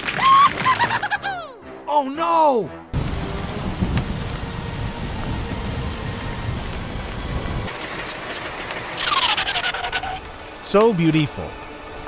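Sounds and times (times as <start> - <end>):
thunder rumbling: 3.0 - 10.7
steady rain: 3.0 - 12.0.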